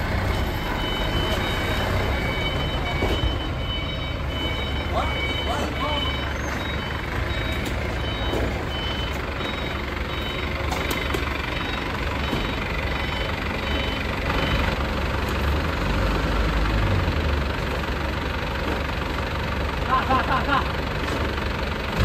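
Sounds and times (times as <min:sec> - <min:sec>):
forklift engine running under load: 0:00.0 - 0:22.0
warning beeper short high beeps: 0:00.8 - 0:10.5.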